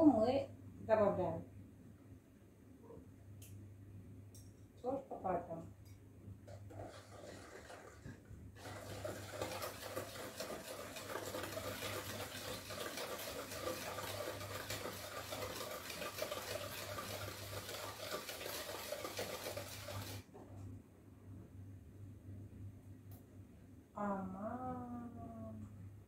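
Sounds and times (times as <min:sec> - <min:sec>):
whisk beating in bowl: 0:06.5 - 0:20.2.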